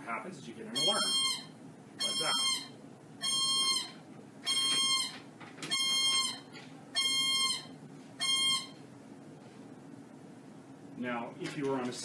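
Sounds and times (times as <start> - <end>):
alarm beeping: 0.8 - 8.8.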